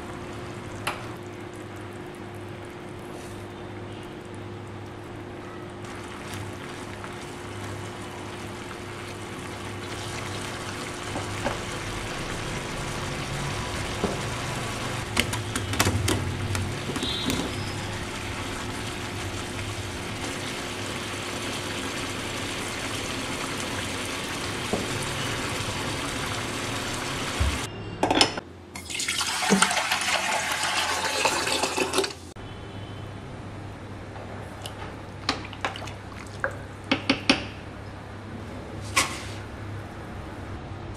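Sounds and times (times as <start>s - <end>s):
sauce bubbling in a frying pan: 0.0s - 15.1s, 16.5s - 27.7s
tap water running into saucepan: 28.8s - 32.2s.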